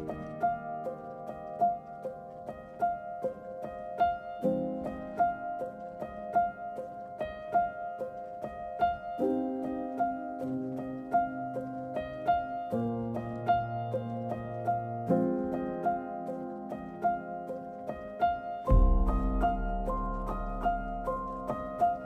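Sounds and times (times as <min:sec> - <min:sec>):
instrumental background music: 0:17.9 - 0:22.0.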